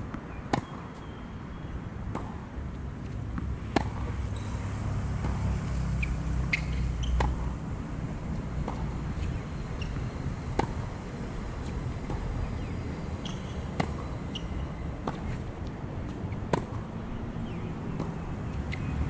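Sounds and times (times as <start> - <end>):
traffic rumble: 0.0 - 19.0
tennis ball bouncing: 0.1 - 1.1, 2.1 - 19.0
racket striking tennis ball: 3.3 - 7.6, 8.6 - 10.9, 11.6 - 16.9.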